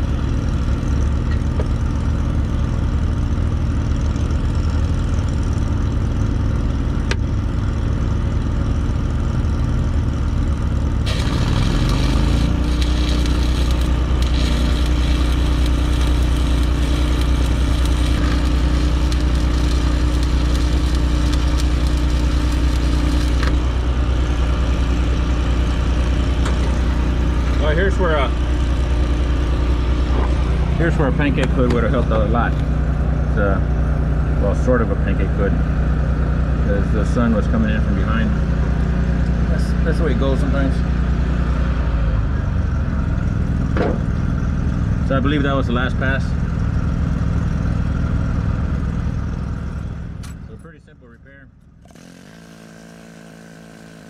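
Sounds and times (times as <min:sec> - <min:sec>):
welder engine running: 0:00.0 - 0:54.0
welding arc crackling: 0:10.5 - 0:27.7, 0:51.9 - 0:54.0.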